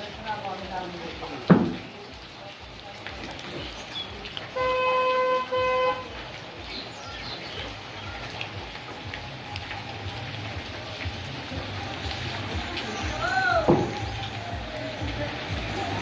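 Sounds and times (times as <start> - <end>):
vehicle horn honking: 4.6 - 6.1.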